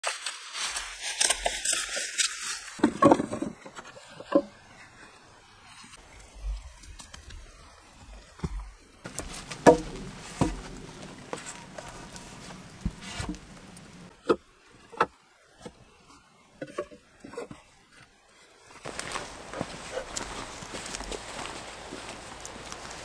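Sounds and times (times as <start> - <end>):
wooden poles knocking: 2.8 - 4.5, 9.1 - 14.4
plastic poncho rustling: 9.1 - 14.1, 18.8 - 23.0.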